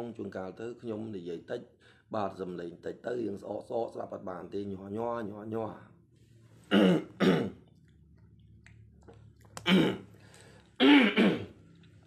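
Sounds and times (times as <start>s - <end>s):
man clearing throat with coughs: 6.7s - 7.6s, 9.6s - 10.1s, 10.8s - 11.6s.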